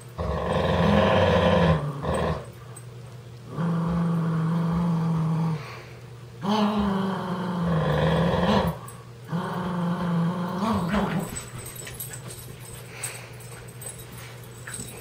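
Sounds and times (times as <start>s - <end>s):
dog play-growling: 0.0s - 15.0s.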